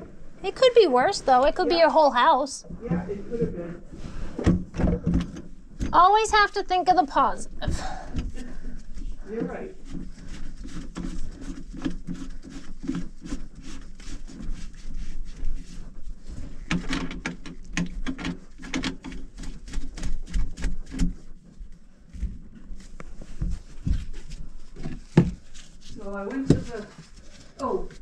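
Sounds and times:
plastic pipe fittings clicking: 16.7s - 19.3s.

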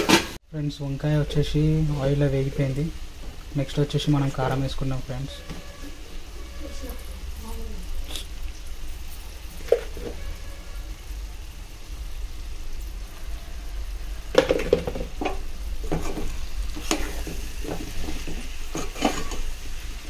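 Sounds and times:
vegetables sizzling in oil: 0.0s - 20.0s
ladle scraping a metal pot: 9.6s - 10.7s, 15.9s - 19.6s.

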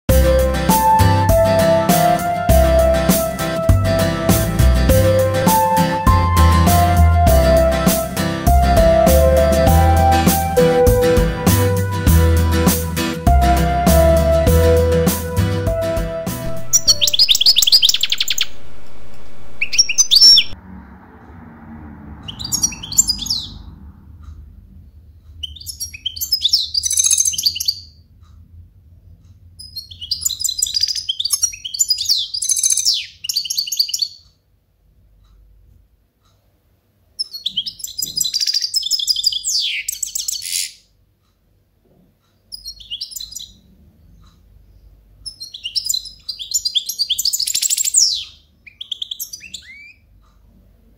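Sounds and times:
bird twittering song: 16.4s - 20.6s, 22.3s - 23.6s, 25.2s - 28.0s, 29.6s - 34.3s, 37.2s - 40.9s, 42.4s - 50.1s.

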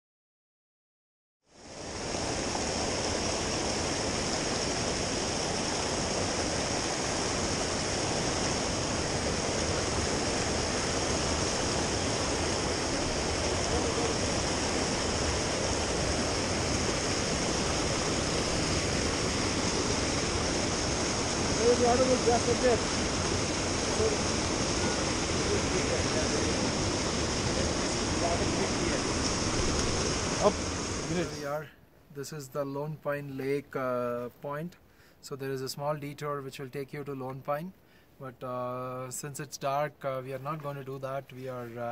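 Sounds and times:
creek rushing over rocks: 1.6s - 31.5s.

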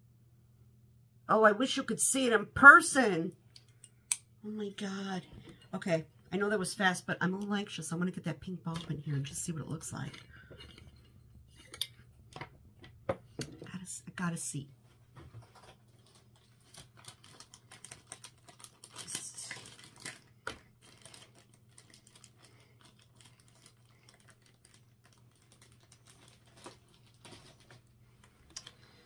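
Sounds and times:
light rustling of small objects: 14.8s - 29.0s.

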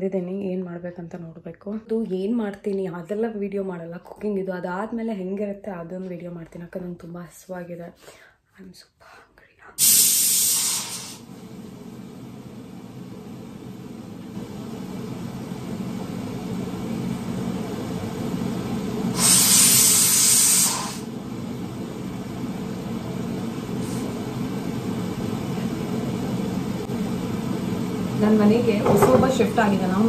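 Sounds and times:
pressure cooker steam hiss: 9.8s - 11.7s, 14.6s - 21.2s.

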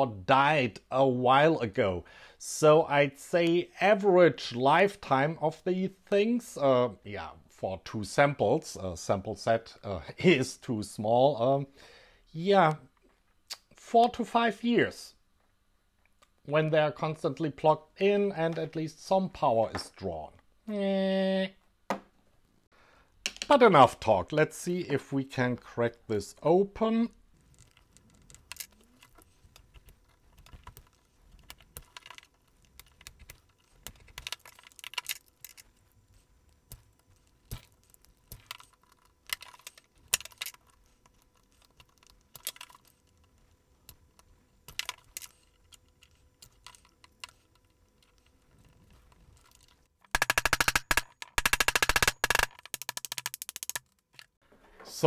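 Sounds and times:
plastic case creaking and clicking: 27.4s - 35.8s, 36.8s - 43.4s, 44.7s - 54.4s
rapid crackling clicks: 49.4s - 54.3s.

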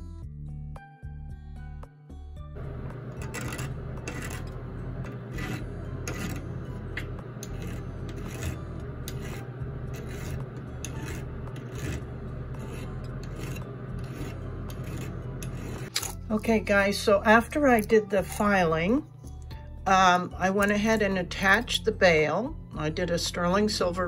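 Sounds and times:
hand file rasping on metal: 2.6s - 15.9s.

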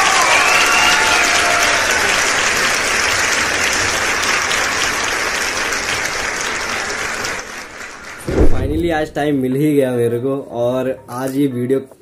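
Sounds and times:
people cheering: 0.0s - 9.2s
crowd applauding: 0.0s - 9.4s.

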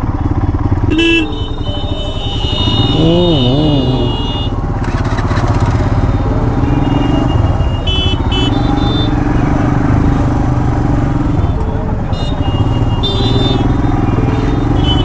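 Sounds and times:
person calling out: 2.8s - 4.5s.

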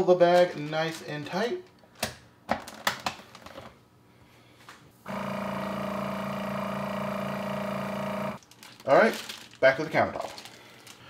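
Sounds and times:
vacuum sealer humming: 5.0s - 8.4s.

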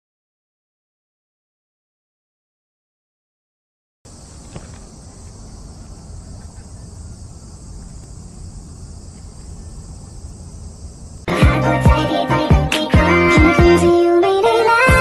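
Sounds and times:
insects chirring: 4.1s - 15.0s.

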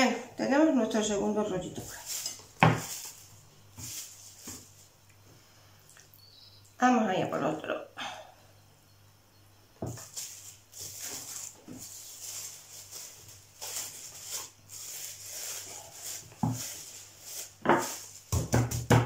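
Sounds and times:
cling film crinkling: 10.0s - 18.3s.

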